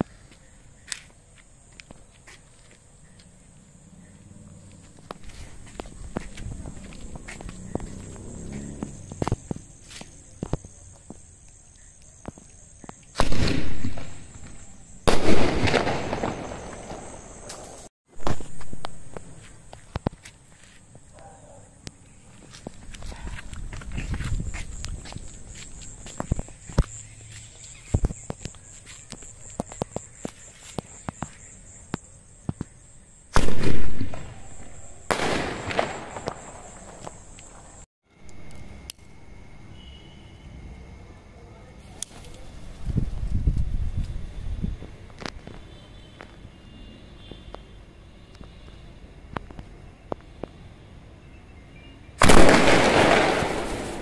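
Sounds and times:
firework bangs with hiss: 13.1 - 20.1, 33.3 - 37.8, 52.2 - 54.0.

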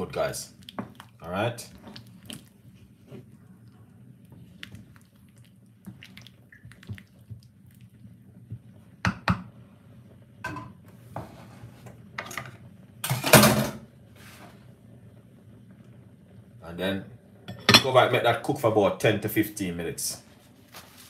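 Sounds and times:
kitchenware clattering: 10.5 - 10.8, 12.2 - 13.8, 17.5 - 18.1.

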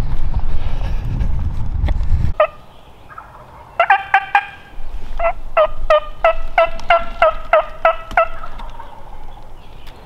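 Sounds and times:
wild turkey yelping: 2.4 - 9.5.

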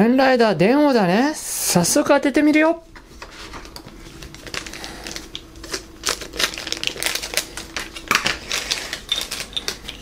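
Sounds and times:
plastic bag crinkling: 3.5 - 10.0.

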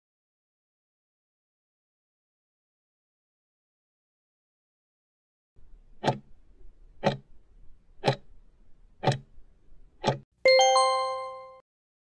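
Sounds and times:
clock ticking: 5.9 - 6.4, 7.0 - 7.4, 8.0 - 8.4, 9.0 - 9.4, 10.0 - 10.2
bell-like chime: 10.5 - 11.6.

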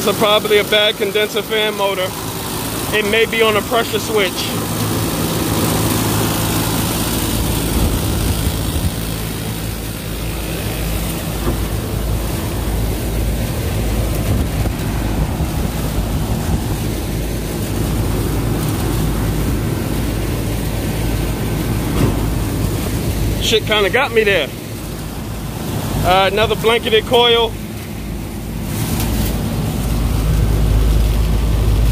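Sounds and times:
condenser fans humming: 0.0 - 31.9
wind on microphone: 6.6 - 9.5, 11.2 - 18.6.

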